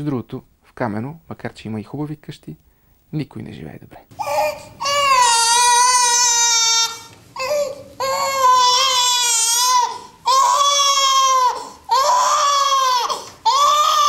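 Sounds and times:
baby crying: 4.2s - 14.0s.

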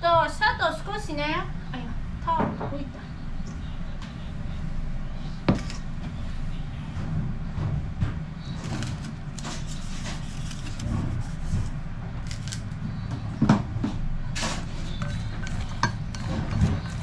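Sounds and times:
steady low hum: 0.0s - 17.0s
chopsticks mixing in glass bowl: 14.8s - 17.0s.

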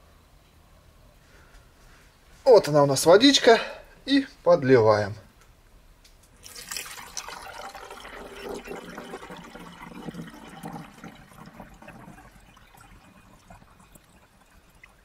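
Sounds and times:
water pouring into plastic reservoir: 6.4s - 15.0s.

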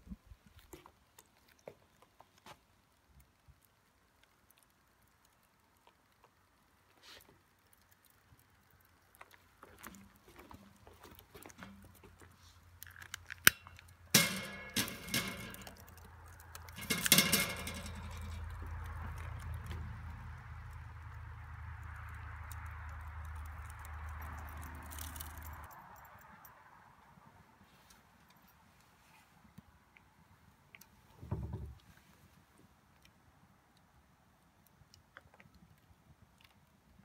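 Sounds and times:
wood fire crackling and popping: 0.4s - 26.4s.

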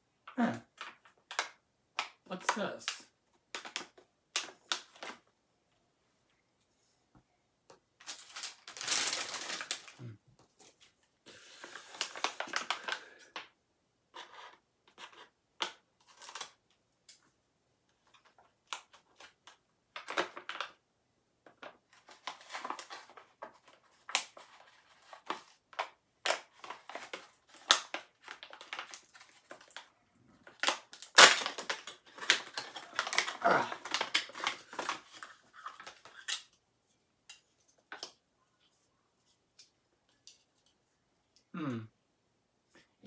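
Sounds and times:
wrapper crinkling and tearing: 2.3s - 5.2s, 8.0s - 10.8s, 11.5s - 13.2s, 16.1s - 16.6s, 21.5s - 36.6s.

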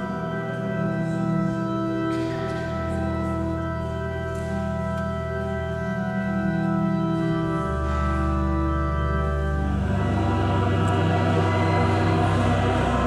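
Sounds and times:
pipe organ chords: 0.0s - 13.0s
choir singing: 9.6s - 13.0s.

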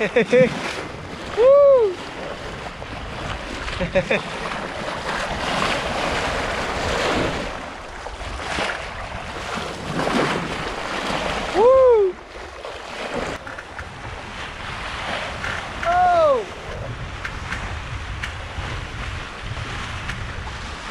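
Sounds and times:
sea water splashing along a bow: 0.0s - 20.9s
wind buffeting microphone: 0.0s - 20.9s
person whooping: 1.3s - 2.0s, 11.5s - 12.2s, 15.8s - 16.6s.

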